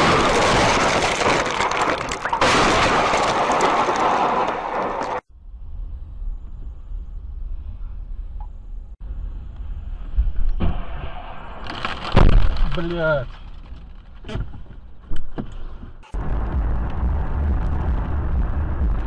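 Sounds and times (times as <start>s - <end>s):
vehicle collision crash: 0.0s - 5.2s
car engine and tyres rumble: 4.1s - 19.0s.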